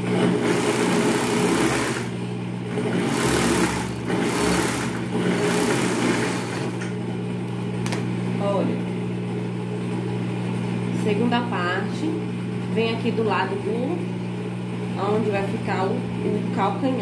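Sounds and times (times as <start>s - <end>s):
overlock machine stitching: 0.0s - 6.9s
motor humming: 0.0s - 8.0s.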